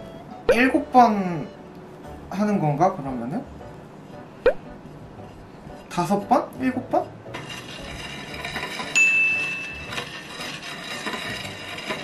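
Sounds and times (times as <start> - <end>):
scraper rubbing on icing: 7.0 - 12.0
high ringing tone: 9.0 - 10.0.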